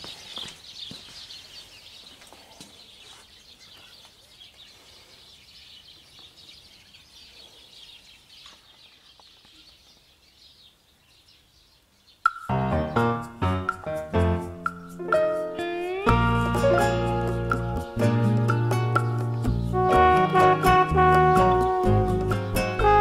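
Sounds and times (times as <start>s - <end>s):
footsteps: 0.0s - 5.1s
birds chirping: 0.0s - 19.9s.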